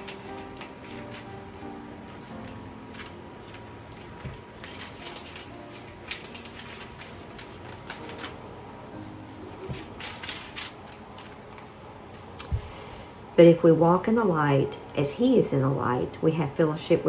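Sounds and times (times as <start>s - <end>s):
book pages turning: 0.0s - 12.4s.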